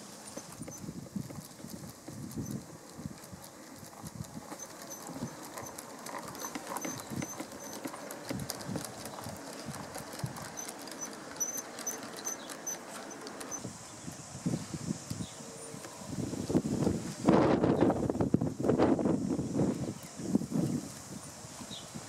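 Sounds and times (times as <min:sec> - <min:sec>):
model train wheels clicking on rails: 0:00.0 - 0:14.2.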